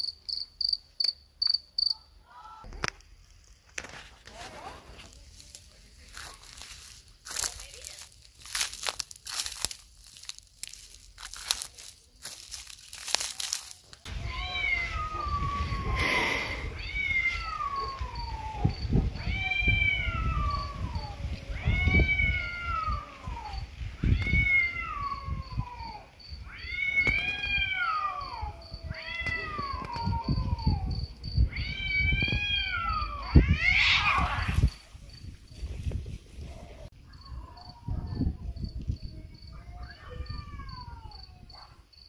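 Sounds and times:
cricket chirping: 0:00.0 - 0:02.6, 0:05.3 - 0:42.0
cat yowling: 0:14.1 - 0:34.7, 0:39.5 - 0:41.8.

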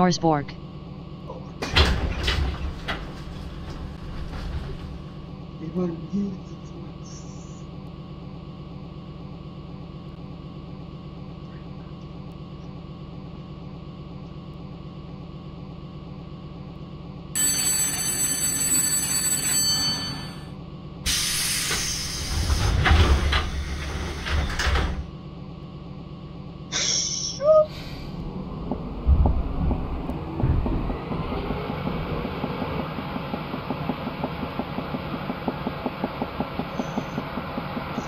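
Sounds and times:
doors sliding shut: 0:01.6 - 0:05.0, 0:21.7 - 0:25.1
train humming: 0:15.0 - 0:38.0
door-closing warning tone: 0:17.4 - 0:20.5, 0:21.1 - 0:25.1.

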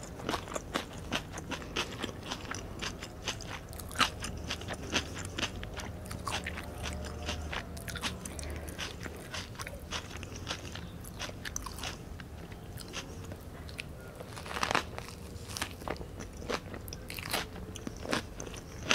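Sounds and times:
crunchy bite: 0:13.8 - 0:18.9.

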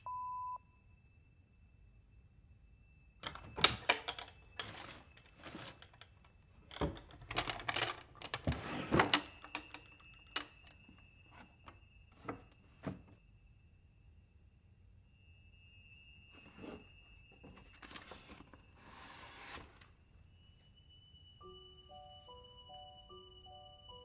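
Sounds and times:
rummaging through wooden drawer: 0:03.2 - 0:06.0, 0:06.7 - 0:09.5, 0:17.4 - 0:19.8.

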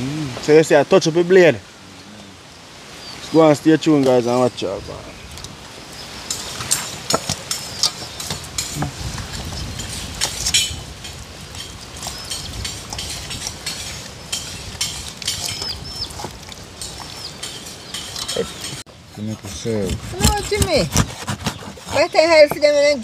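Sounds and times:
hands rubbing wet fish: 0:11.5 - 0:18.8.

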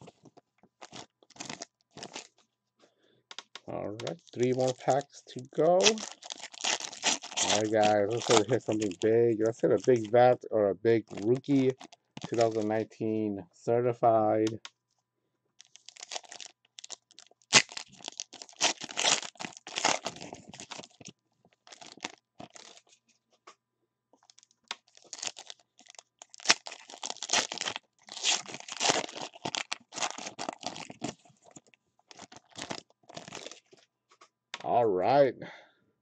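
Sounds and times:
foil wrappers tearing and crinkling: 0:00.8 - 0:02.4, 0:04.0 - 0:10.4, 0:11.0 - 0:12.8, 0:15.6 - 0:23.0, 0:24.2 - 0:33.8.

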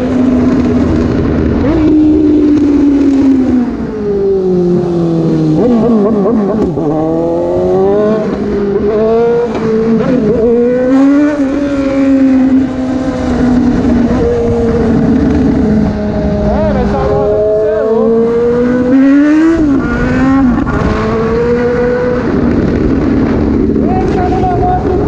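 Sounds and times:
motorcycle engine at speed: 0:00.0 - 0:25.0.

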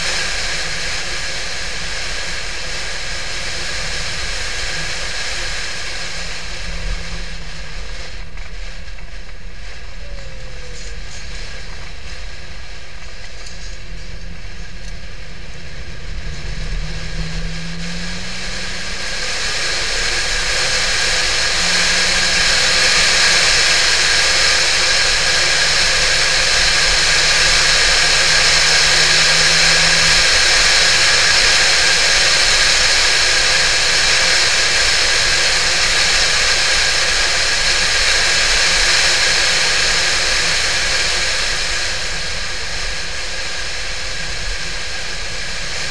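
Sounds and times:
car engine driving at speed: 0:00.0 - 0:45.9
wind and road rush: 0:00.0 - 0:45.9.

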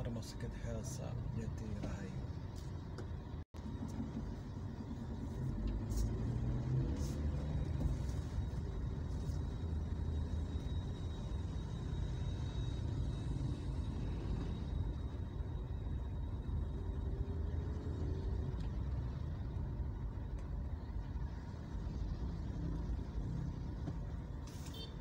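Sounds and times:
road noise: 0:00.0 - 0:25.0
vehicle engine rumble: 0:00.0 - 0:25.0.

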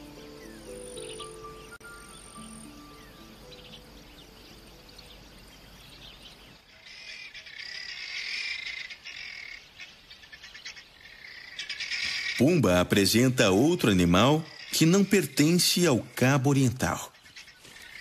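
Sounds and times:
faint music: 0:00.0 - 0:06.6
birds chirping: 0:00.0 - 0:18.0.

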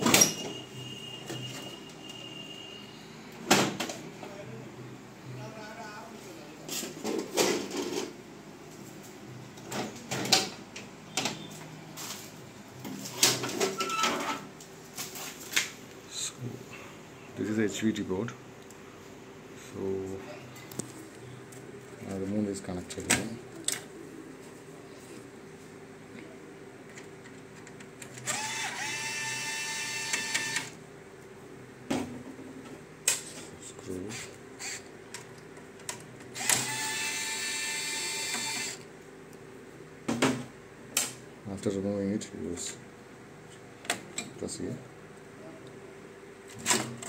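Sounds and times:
drill motor whine: 0:28.3 - 0:30.7, 0:34.1 - 0:34.9, 0:36.4 - 0:38.8.

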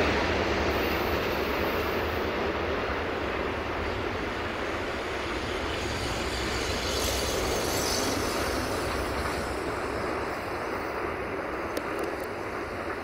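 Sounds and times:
train wheels rumbling on rail: 0:00.0 - 0:13.0
wheels squealing on curve: 0:06.0 - 0:10.6.

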